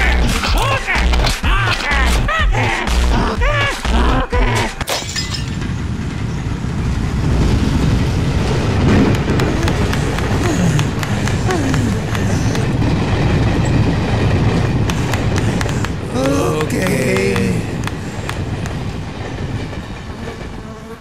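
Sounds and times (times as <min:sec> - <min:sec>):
music with heavy pulsing beat: 0:00.0 - 0:04.8
passing train rumble: 0:03.4 - 0:21.0.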